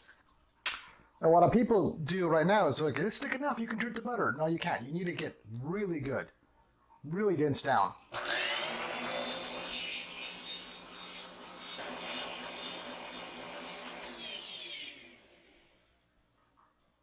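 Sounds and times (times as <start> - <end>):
electric stand mixer whisking: 8.2 - 15.9.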